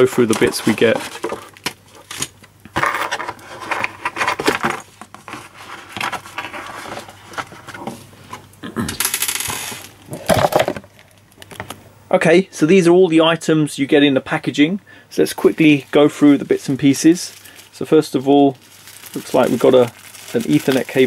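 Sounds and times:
cardboard and plastic bag rustling: 0.0s - 2.3s, 3.0s - 8.2s, 15.2s - 21.0s
plastic parts clattering on table: 9.0s - 11.7s.

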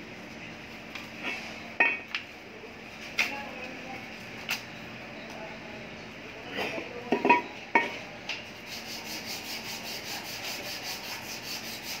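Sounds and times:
fast even rubbing strokes: 8.6s - 12.0s.

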